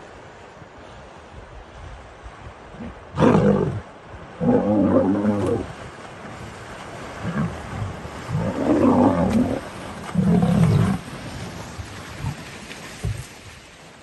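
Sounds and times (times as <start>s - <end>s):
deep animal roars: 4.4s - 5.7s, 8.3s - 11.0s
splashing water: 4.4s - 14.0s.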